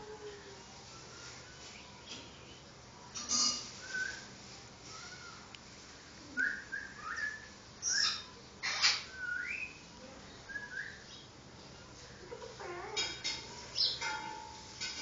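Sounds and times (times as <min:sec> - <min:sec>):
parrot squawks: 0:07.8 - 0:09.2.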